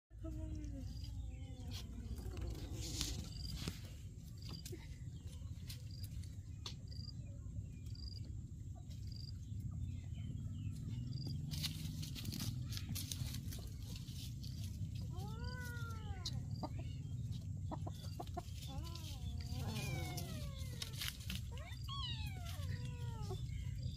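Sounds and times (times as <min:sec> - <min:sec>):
steady low rumble: 0:00.1 - 0:23.9
cat meowing: 0:19.4 - 0:23.5.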